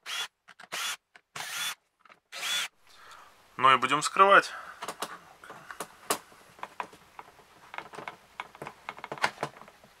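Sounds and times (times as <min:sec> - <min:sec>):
plastic clicks and knocks: 0:04.8 - 0:10.0.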